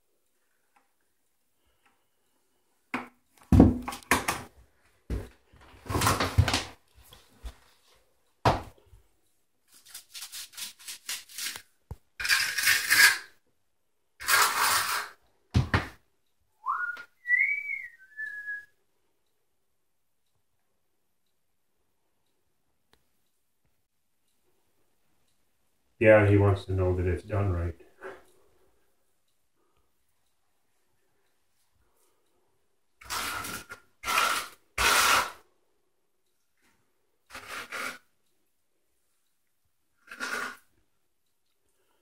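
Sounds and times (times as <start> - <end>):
steel trowel scraping floor: 9.7 - 13.4, 14.2 - 15.2, 33.0 - 35.4, 37.3 - 38.1, 40.0 - 40.8
person whistling: 16.6 - 18.7.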